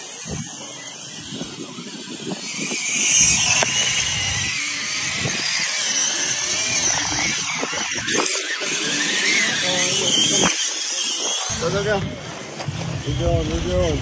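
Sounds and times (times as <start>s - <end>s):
toy car motor whining: 0.0s - 14.0s
gravel crunching under tyres: 10.4s - 14.0s.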